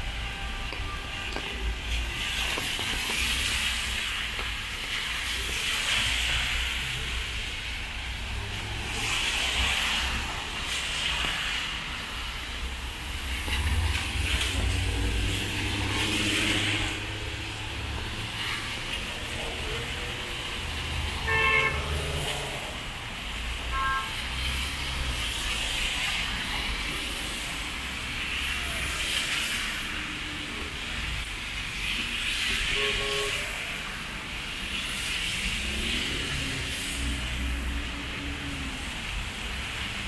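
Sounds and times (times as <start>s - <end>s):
car tyres through water: 0.0s - 40.0s
rain falling: 0.0s - 40.0s
car engines passing: 0.8s - 32.8s, 33.4s - 40.0s
car horn toot: 21.2s - 21.9s, 23.7s - 24.2s, 32.8s - 33.4s.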